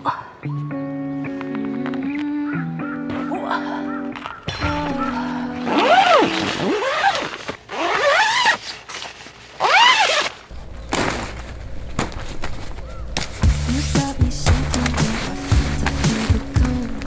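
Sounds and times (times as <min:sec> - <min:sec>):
tent fabric rustling: 0:04.8 - 0:17.0.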